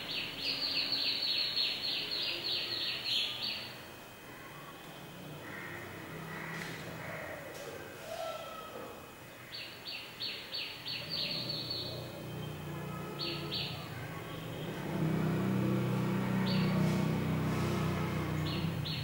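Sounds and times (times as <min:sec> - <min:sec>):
bird chirping: 0:00.0 - 0:03.9, 0:09.5 - 0:19.0
low engine rumble: 0:11.6 - 0:19.0.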